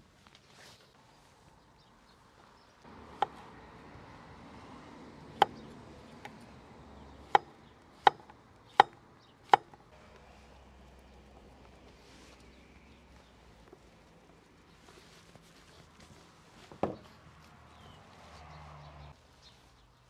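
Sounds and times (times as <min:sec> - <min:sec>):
knife chopping on a board: 0:07.3 - 0:09.7.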